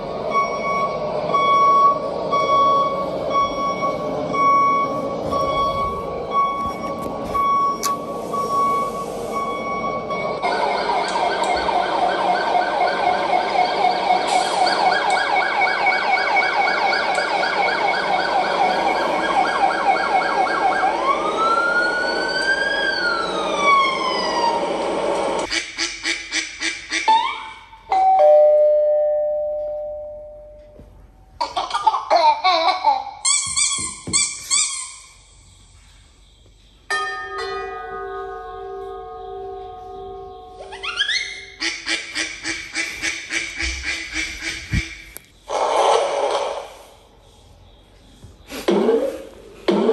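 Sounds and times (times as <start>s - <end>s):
siren through small speaker: 0.3s - 24.7s.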